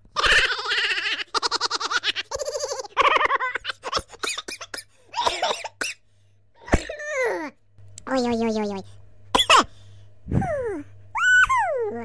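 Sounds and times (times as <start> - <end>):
person giggling and squealing: 0.1 - 4.5, 10.3 - 12.0.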